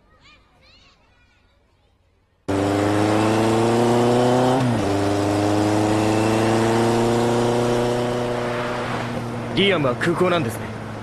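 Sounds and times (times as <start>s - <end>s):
motorcycle engine accelerating: 2.5s - 11.0s.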